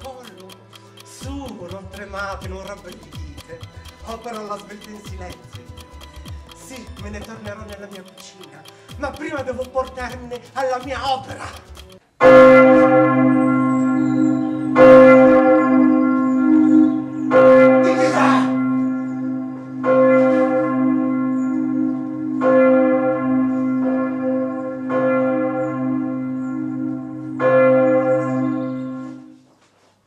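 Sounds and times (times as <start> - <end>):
deep bell tolling: 12.2 - 29.3.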